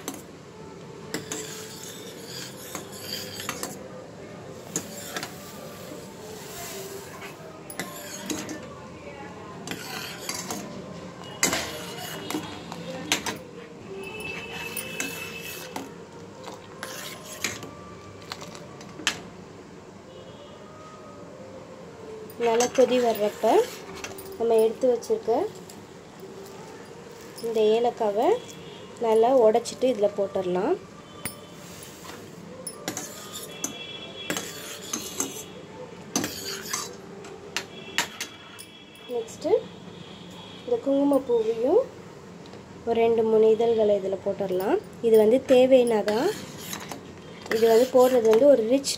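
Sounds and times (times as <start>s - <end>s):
spoon clinking against a saucepan: 7.7s - 8.6s, 32.6s - 35.4s.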